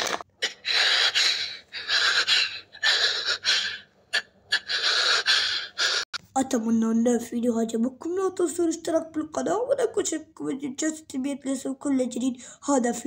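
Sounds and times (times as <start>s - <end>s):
person breathing heavily: 0.4s - 6.2s.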